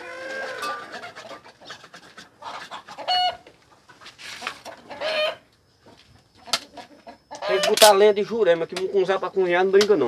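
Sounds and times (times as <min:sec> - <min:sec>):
loud short chicken call: 0:00.0 - 0:01.2
chickens clucking: 0:00.0 - 0:10.0.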